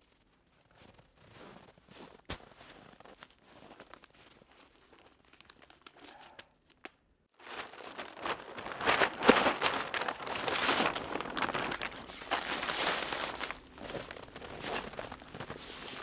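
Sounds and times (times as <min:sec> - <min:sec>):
tarp crinkling: 0:07.4 - 0:16.0.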